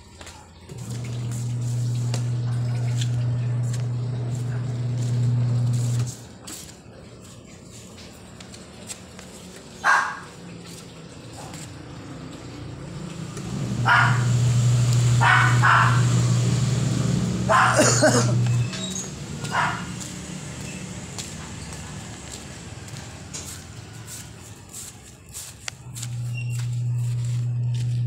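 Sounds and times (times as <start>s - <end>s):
washing machine motor humming: 0.6s - 25.1s, 25.8s - 28.0s
dog barking: 9.8s - 10.4s, 13.8s - 14.5s, 15.2s - 16.2s, 17.4s - 18.3s, 19.4s - 20.1s.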